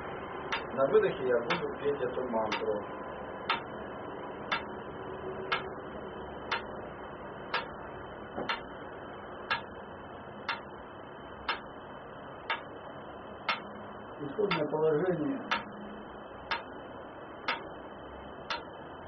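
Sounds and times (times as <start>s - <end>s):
metronome ticking: 0.5s - 1.7s, 2.5s - 2.8s, 3.4s - 3.7s, 4.5s - 4.8s, 5.5s - 5.8s, 6.5s - 6.8s, 7.5s - 7.8s, 8.4s - 8.7s, 9.5s - 9.8s, 10.4s - 10.7s, 11.4s - 11.8s, 12.5s - 12.8s, 13.4s - 14.8s, 15.4s - 16.8s, 17.4s - 17.8s, 18.4s - 18.8s.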